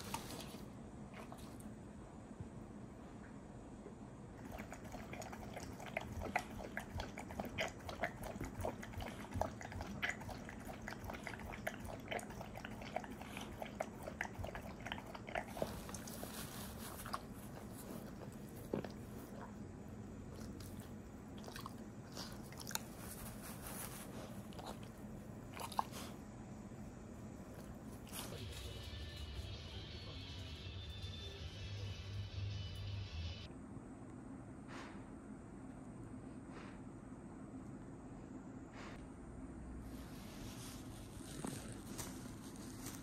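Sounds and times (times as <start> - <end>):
dog chewing and licking: 4.4 - 26.2.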